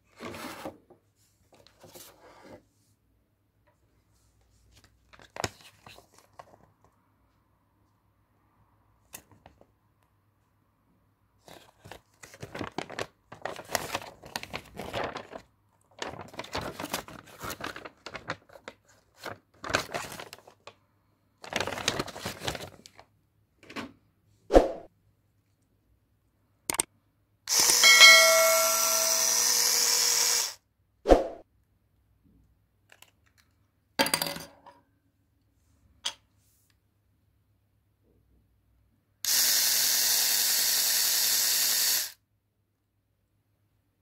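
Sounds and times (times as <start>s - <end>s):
paper rustling and crinkling: 4.5s - 6.8s, 11.4s - 20.8s, 21.4s - 23.1s
epilator motor whine: 27.5s - 30.6s.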